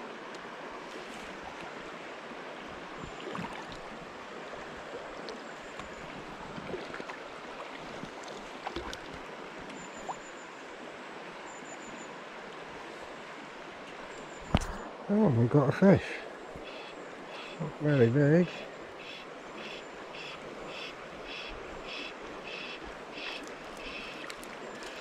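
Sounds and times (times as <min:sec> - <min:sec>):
river water flowing: 0:00.0 - 0:25.0
faint light clicks: 0:23.4 - 0:25.0.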